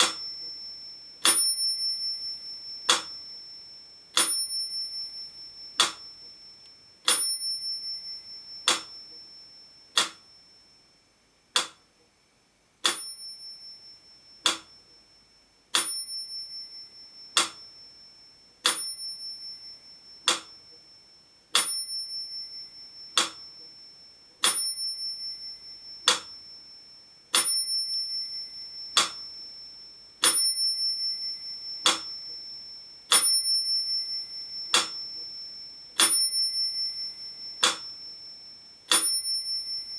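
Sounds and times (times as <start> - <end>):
metronome ticking: 0.0 - 3.5, 4.2 - 7.8, 8.5 - 10.4, 11.6 - 11.9, 12.8 - 13.5, 14.3 - 14.8, 17.2 - 17.8, 18.6 - 20.9, 21.6 - 26.4, 27.3 - 29.4, 31.4 - 32.5, 33.1 - 39.9
metronome bell ringing: 0.0 - 11.0, 12.9 - 39.9.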